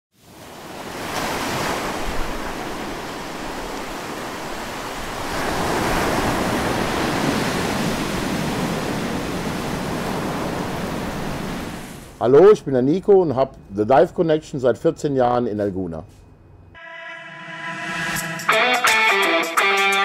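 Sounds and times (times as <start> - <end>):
wind: 0.1 - 16.8
sea waves: 0.2 - 12.2.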